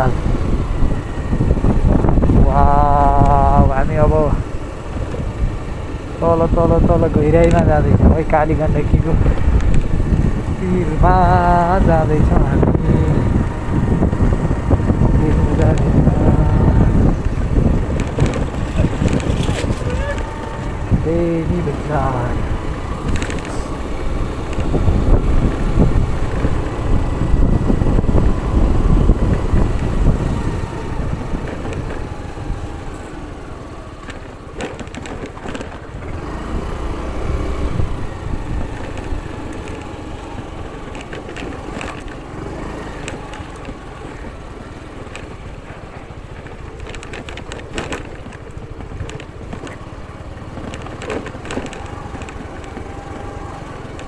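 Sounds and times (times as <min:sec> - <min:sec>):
heavy low rumble: 0:00.0 - 0:34.6
motorcycle engine running low: 0:00.0 - 0:54.0
tyres crunching over gravel: 0:07.0 - 0:24.8, 0:37.0 - 0:54.0.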